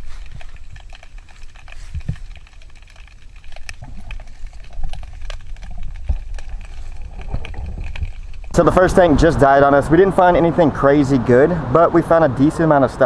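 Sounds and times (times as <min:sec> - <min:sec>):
sharp clicks and crackles: 0:00.0 - 0:10.6
underwater regulator bubbles rumbling: 0:03.2 - 0:10.2.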